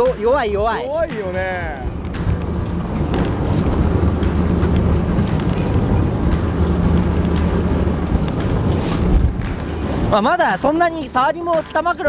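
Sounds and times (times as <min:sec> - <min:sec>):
boat engine running at low revs: 0:00.0 - 0:12.0
sea noise: 0:00.0 - 0:12.0
wind on microphone: 0:01.4 - 0:10.3.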